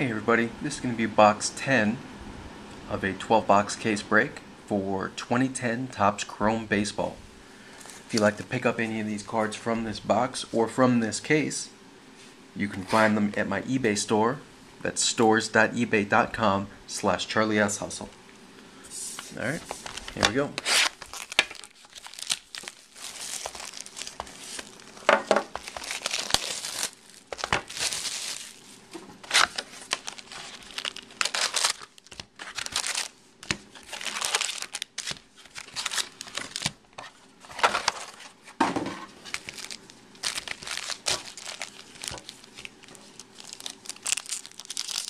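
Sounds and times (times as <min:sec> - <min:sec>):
foil wrappers crinkling and tearing: 0:19.4 - 0:38.4, 0:39.2 - 0:45.0.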